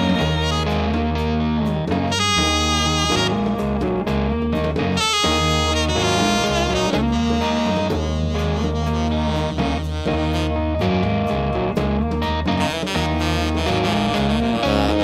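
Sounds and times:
bass: 0:00.0 - 0:15.0
distorted electric guitar: 0:00.0 - 0:15.0
drums: 0:00.0 - 0:15.0
tenor saxophone melody: 0:00.0 - 0:15.0.

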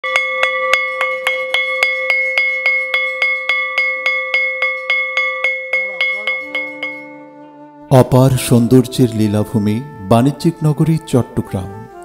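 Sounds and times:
metal bell ringing rapidly: 0:00.0 - 0:07.2.

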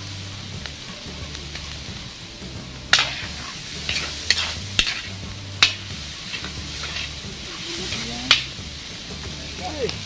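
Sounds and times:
vegetables sizzling in a hot pan: 0:00.0 - 0:10.0
utensil scraping and knocking pan: 0:02.9 - 0:08.6.

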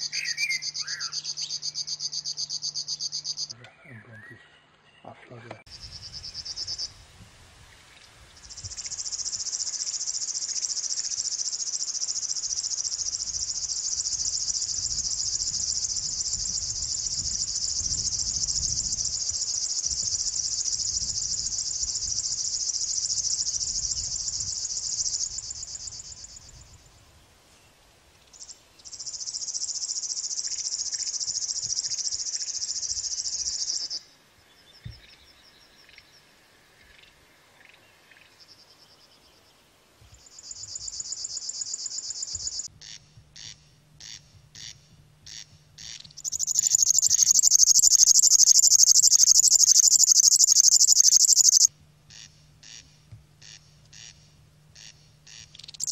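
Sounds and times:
bird reeling song: 0:00.0 - 0:06.9, 0:28.2 - 0:55.9
faint bird chirps: 0:00.0 - 0:06.9, 0:27.5 - 0:55.9.

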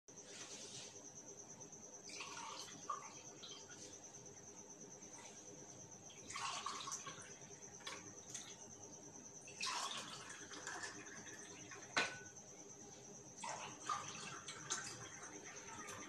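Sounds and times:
liquid pouring into glasses: 0:02.1 - 0:03.7, 0:06.1 - 0:08.6, 0:09.5 - 0:12.3, 0:13.4 - 0:16.0
glass clink: 0:12.0 - 0:12.4.

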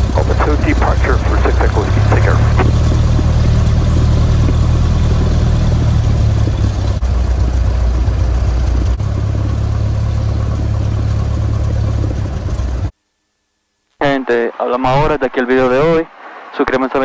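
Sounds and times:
airplane piston engine and propeller: 0:00.0 - 0:12.9.

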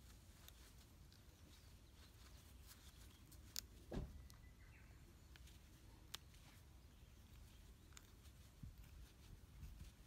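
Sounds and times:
soft dull thump: 0:03.9 - 0:04.2.

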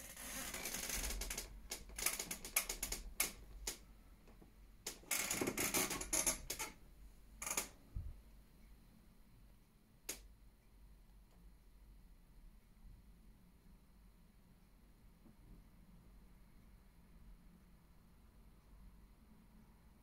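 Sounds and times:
small clicks and rustles: 0:00.0 - 0:06.8.

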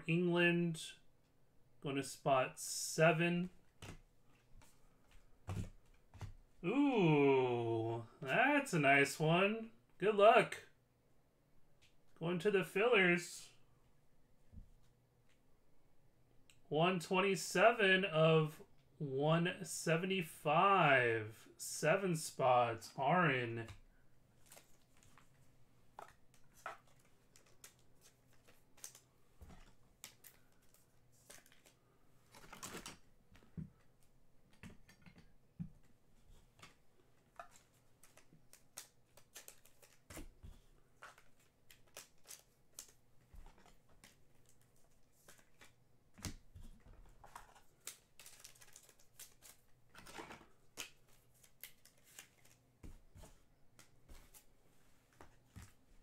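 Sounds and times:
trading cards being shuffled: 0:37.4 - 0:46.4, 0:47.2 - 0:54.5.

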